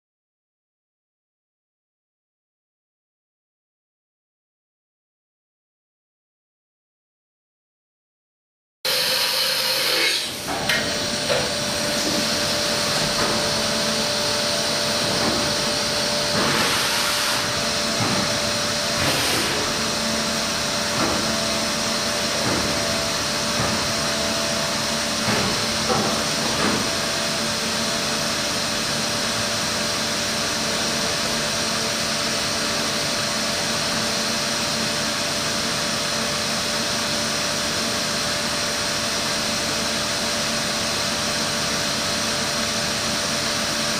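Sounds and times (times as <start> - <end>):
machine whir and hiss: 8.9 - 43.9.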